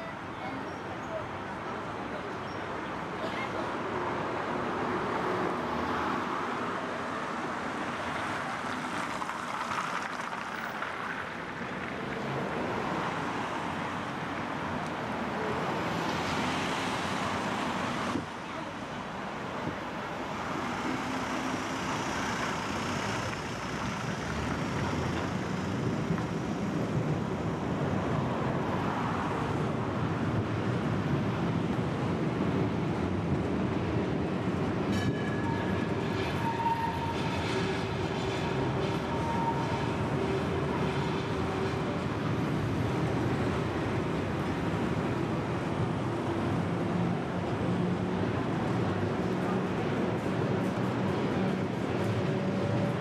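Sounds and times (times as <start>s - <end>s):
tram motor and wheels rumbling: 0.0s - 53.0s
high squeal: 35.1s - 40.0s.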